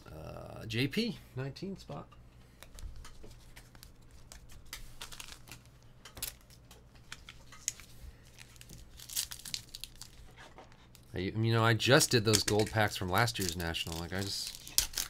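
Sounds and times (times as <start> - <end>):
cards rustling and clicking: 2.5 - 11.1, 11.9 - 15.0
card pack wrapper crinkling: 3.1 - 11.1, 11.8 - 15.0.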